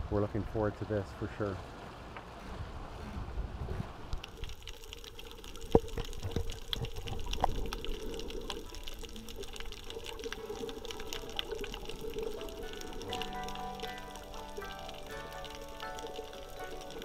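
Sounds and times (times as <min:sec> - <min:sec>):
muffled underwater wash: 0:00.0 - 0:17.0
crackle of small clicks: 0:04.1 - 0:17.0.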